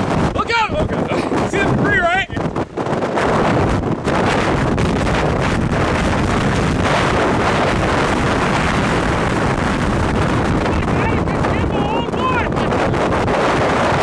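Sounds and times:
strong wind buffeting microphone: 0:00.0 - 0:14.0.

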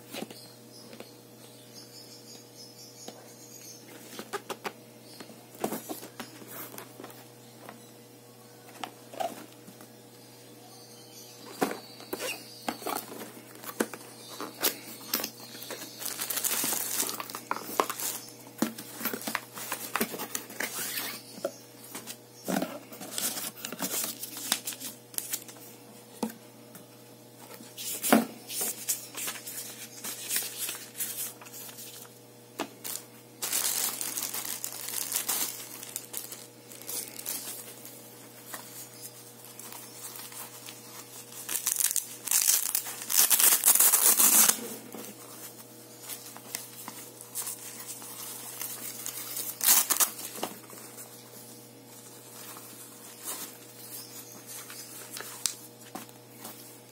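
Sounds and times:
plastic packaging crinkling: 0:12.2 - 0:21.1, 0:32.7 - 0:51.0.

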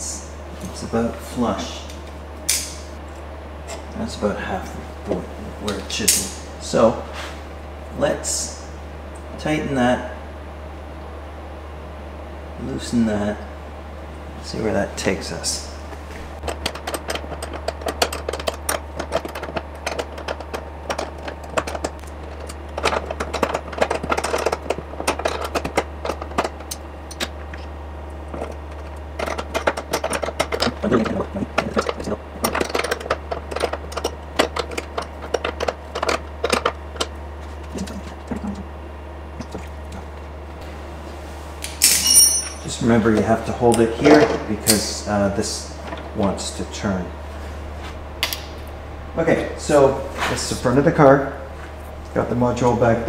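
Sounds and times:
steady low hum: 0:00.0 - 0:53.0
wrench clicking and metal clatter: 0:41.6 - 0:42.6.

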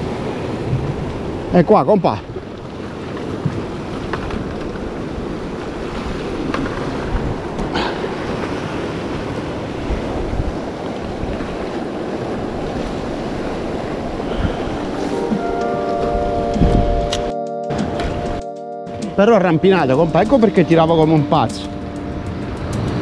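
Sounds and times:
wind buffeting microphone: 0:00.0 - 0:01.5, 0:02.2 - 0:18.4
sea waves washing against rocks: 0:00.0 - 0:17.1, 0:17.8 - 0:23.0.

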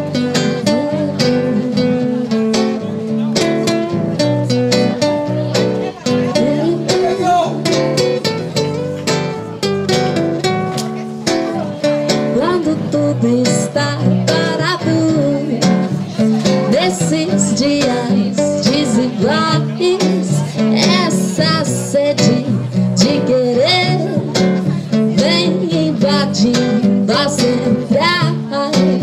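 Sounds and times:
woman singing: 0:00.0 - 0:02.3, 0:06.2 - 0:07.0, 0:12.3 - 0:29.0
acoustic guitar strumming: 0:00.0 - 0:29.0.

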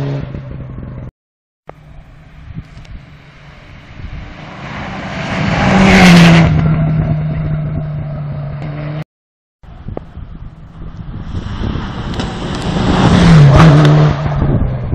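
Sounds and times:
rally car passing at speed: 0:03.7 - 0:07.8, 0:11.4 - 0:14.7.

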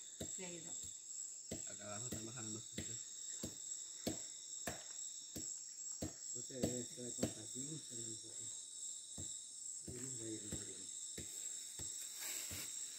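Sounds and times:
insects buzzing: 0:00.0 - 0:12.9.

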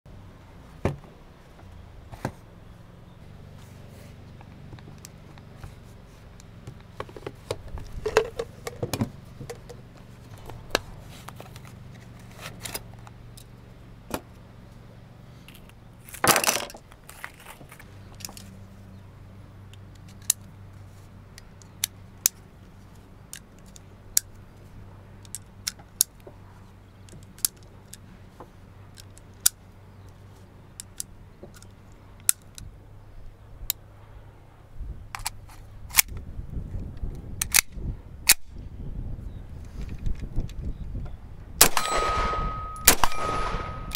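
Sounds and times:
pistol metallic clicks and rattles: 0:19.7 - 0:20.5, 0:21.3 - 0:24.4, 0:25.2 - 0:26.2, 0:27.0 - 0:28.0, 0:28.9 - 0:32.7, 0:35.2 - 0:36.2, 0:37.1 - 0:38.4
cartridges clicking into magazine: 0:29.0 - 0:30.2, 0:30.8 - 0:32.7, 0:37.4 - 0:38.5.

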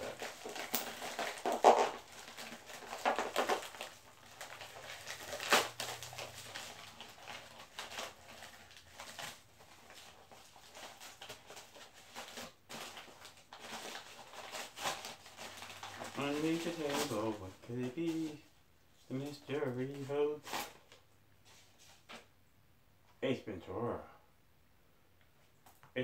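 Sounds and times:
packaging crinkling: 0:00.0 - 0:18.4.

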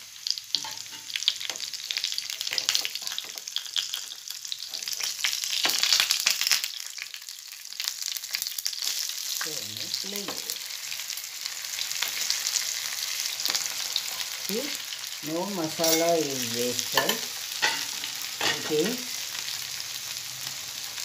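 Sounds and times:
fish sizzling in oil: 0:00.0 - 0:21.0
spatula scraping pan: 0:15.8 - 0:19.0.

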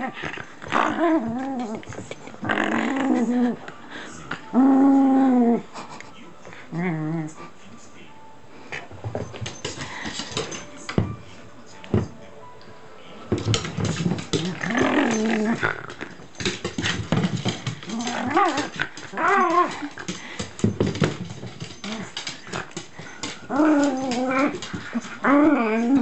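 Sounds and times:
dog growling and whining: 0:00.0 - 0:03.6, 0:04.4 - 0:05.7, 0:06.7 - 0:07.4, 0:14.4 - 0:15.9, 0:17.8 - 0:20.0, 0:23.2 - 0:26.0.

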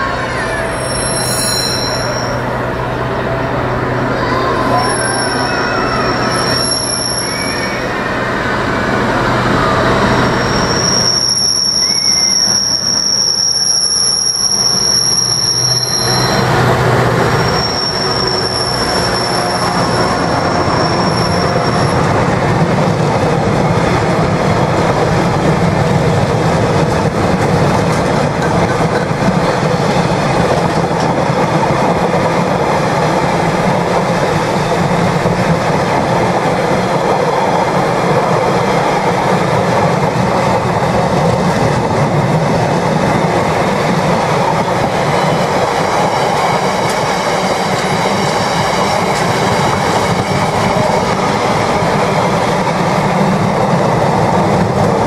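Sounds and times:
diesel locomotive engine hum: 0:00.0 - 0:55.0
high-pitched wheel squeal: 0:00.3 - 0:02.5, 0:04.2 - 0:08.1, 0:09.7 - 0:16.6, 0:17.3 - 0:22.1.

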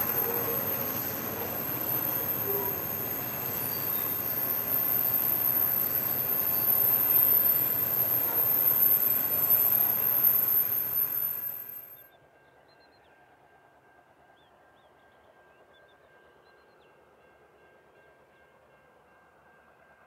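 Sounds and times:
small high chirps: 0:00.0 - 0:12.0
train rolling past with whine: 0:00.0 - 0:12.0.

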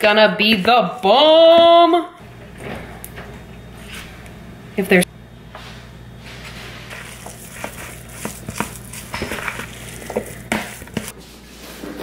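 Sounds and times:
fork scraping plastic bowl: 0:06.8 - 0:11.1.

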